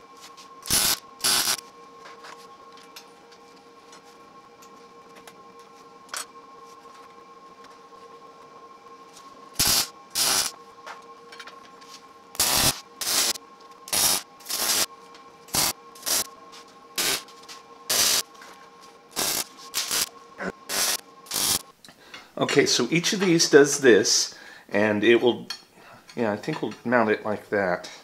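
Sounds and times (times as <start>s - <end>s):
welder arc crackling: 0.6s - 1.6s, 9.6s - 10.6s, 12.3s - 16.3s, 17.0s - 18.3s, 19.1s - 21.7s.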